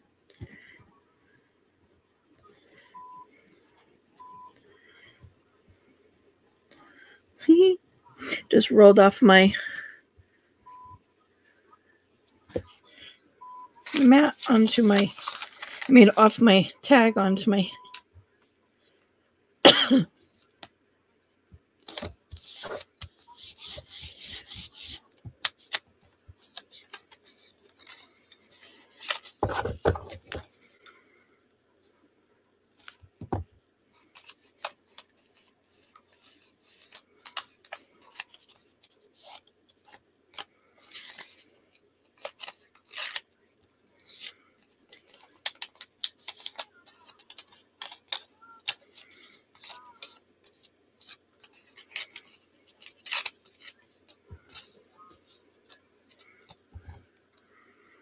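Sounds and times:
paper rustling: 13.8 - 16.2, 21.8 - 30.8, 34.0 - 43.4, 44.0 - 57.0
scissors snipping paper: 44.9 - 54.8.

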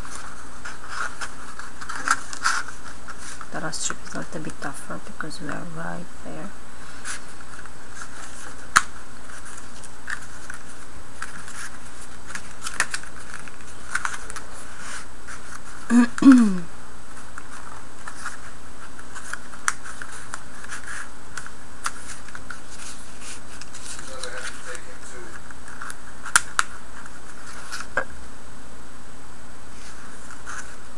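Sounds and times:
cardstock strips clicking and scraping: 0.0 - 4.2, 7.0 - 15.8
steady hiss: 0.0 - 30.9.

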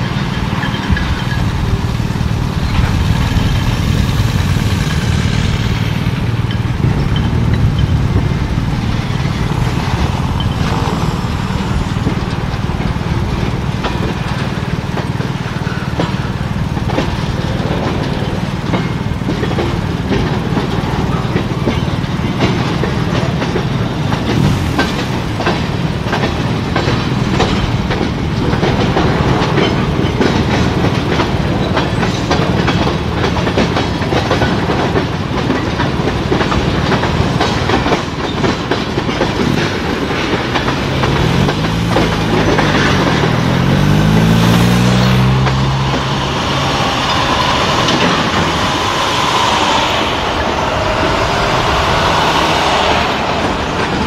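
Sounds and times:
freight train rumbling past: 0.0 - 54.0
train wheels clicking over rail joints: 0.0 - 54.0
motorcycle passing: 41.1 - 54.0.

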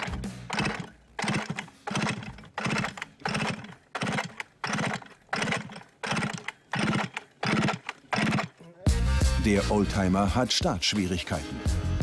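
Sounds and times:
chainsaw pull-start whirr: 0.0 - 8.8.

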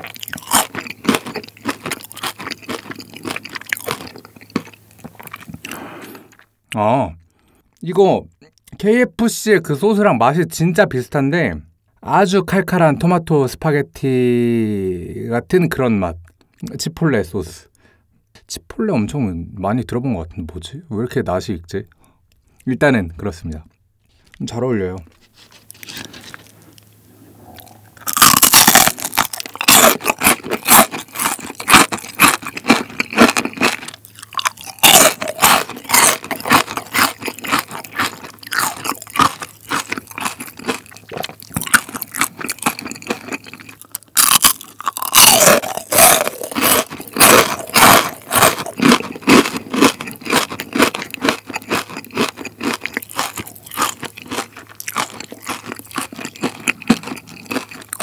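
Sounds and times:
crunching bites and chewing: 0.0 - 6.5, 25.5 - 58.0.

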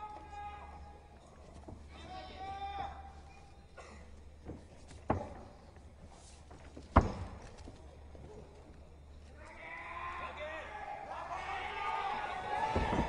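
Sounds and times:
bodies thumping on ring canvas: 6.7 - 7.6
voices: 7.7 - 13.0.

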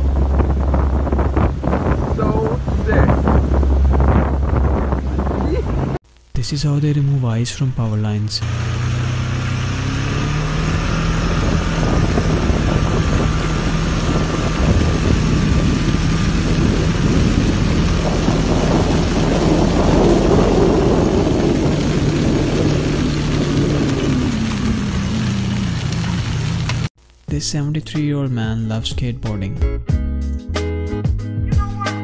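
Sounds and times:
vehicle engine running: 0.0 - 6.0, 8.4 - 26.9
ice breaking and falling: 18.8 - 26.9.

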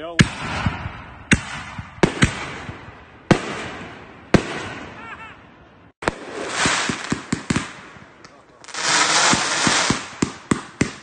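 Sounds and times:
fireworks bangs: 0.0 - 11.0
fireworks crackling pops: 6.0 - 11.0.

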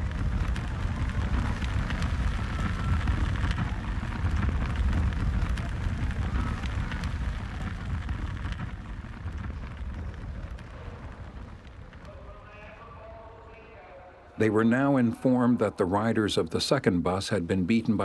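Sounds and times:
large fire roaring: 0.0 - 13.1
fire crackling: 0.0 - 18.0.

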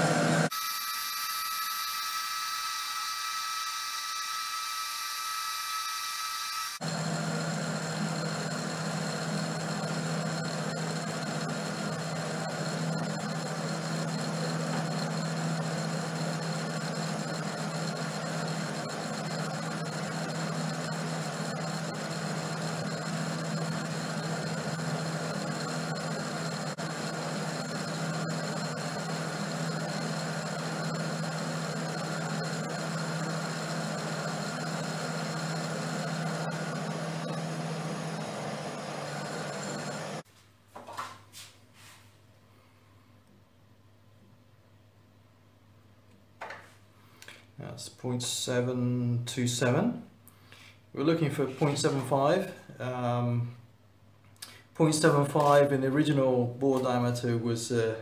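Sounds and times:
metal lathe running: 0.0 - 40.2
boring tool cutting metal: 0.4 - 40.2
low hum: 6.9 - 40.2.

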